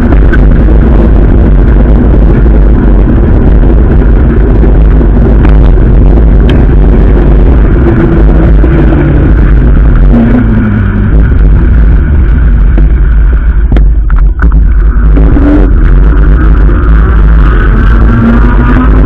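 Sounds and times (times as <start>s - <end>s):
road noise: 0.0s - 19.0s
wind rumble on microphone: 0.0s - 19.0s.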